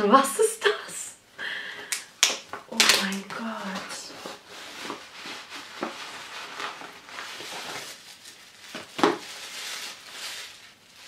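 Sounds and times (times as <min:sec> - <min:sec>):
paper and packaging rustling: 0:02.4 - 0:11.0.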